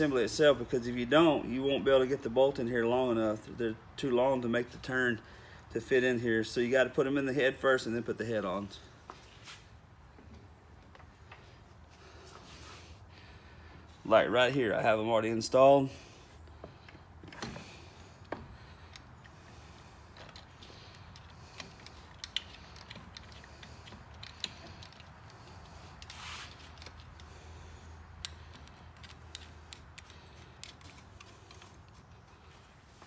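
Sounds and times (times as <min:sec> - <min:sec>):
metallic clicks and scrapes: 0:17.3 - 0:27.6, 0:28.2 - 0:32.7
short rustle: 0:25.4 - 0:27.0.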